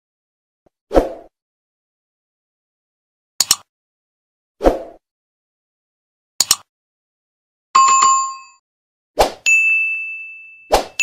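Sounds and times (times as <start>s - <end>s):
double mouse click: 3.4s - 3.7s, 6.4s - 6.7s.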